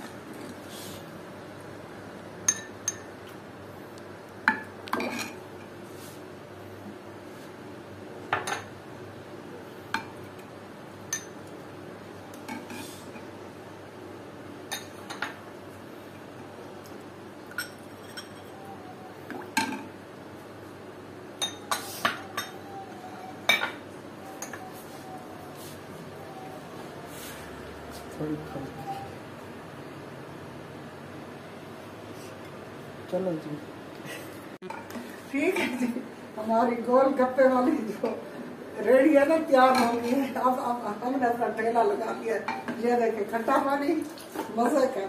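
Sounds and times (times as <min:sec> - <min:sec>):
spoon clinking against glass bowls: 0:02.5 - 0:03.1, 0:17.5 - 0:18.6, 0:21.4 - 0:22.6.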